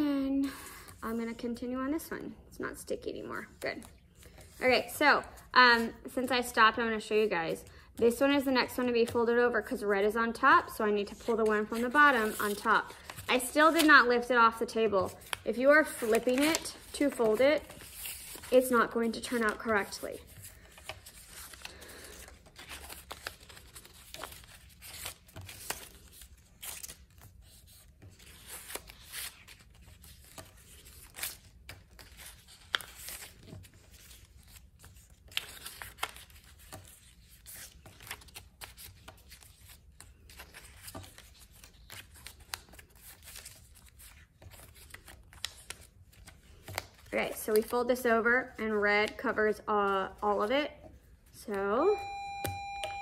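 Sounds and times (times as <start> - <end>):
paper rustling and creasing: 11.0 - 49.3.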